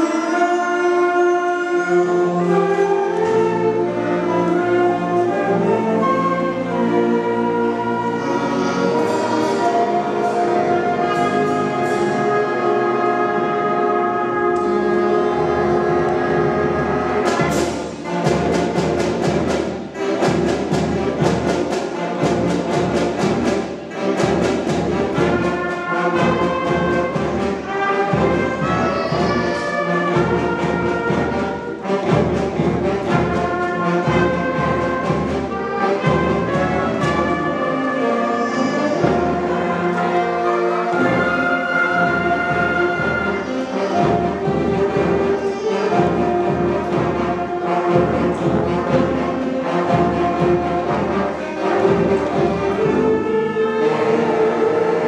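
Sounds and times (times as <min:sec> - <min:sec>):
concert band playing: 0:00.0 - 0:55.0
percussion strikes: 0:14.4 - 0:53.4.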